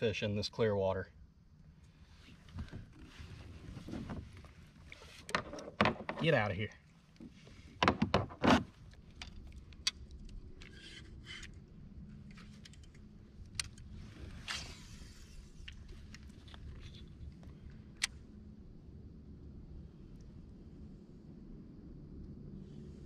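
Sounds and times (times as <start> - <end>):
low steady hum: 0.0 - 23.0
soft rustles: 2.0 - 5.6.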